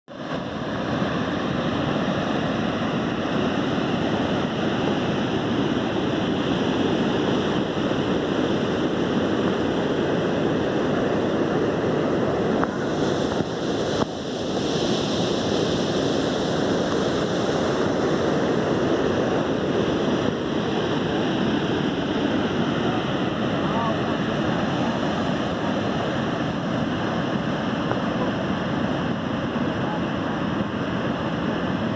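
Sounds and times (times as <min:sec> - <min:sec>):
waterfall rushing: 0:00.1 - 0:31.9.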